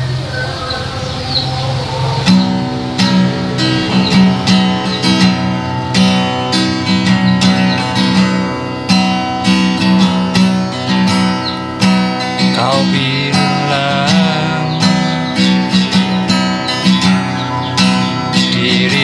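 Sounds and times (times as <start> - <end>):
acoustic guitar picked and strummed: 0.0 - 19.0.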